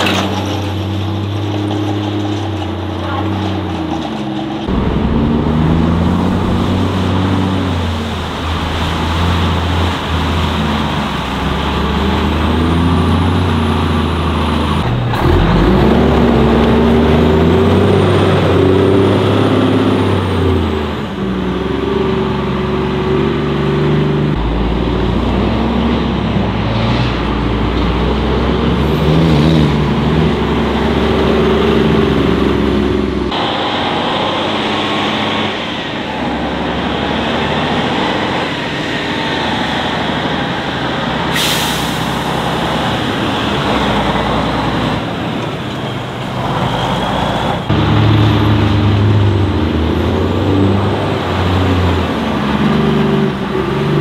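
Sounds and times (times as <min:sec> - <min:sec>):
truck diesel engines revving: 0:00.0 - 0:54.0.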